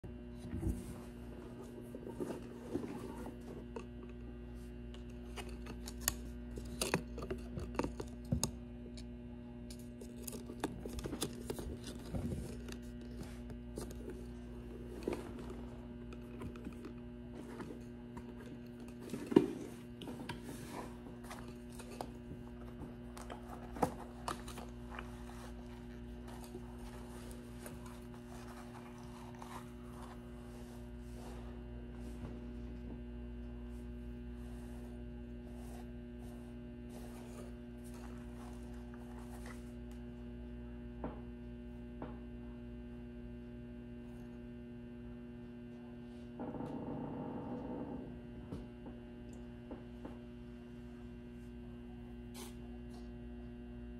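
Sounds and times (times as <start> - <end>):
steady electrical hum: 0.0 - 53.9
latex mask rustling: 10.8 - 32.8.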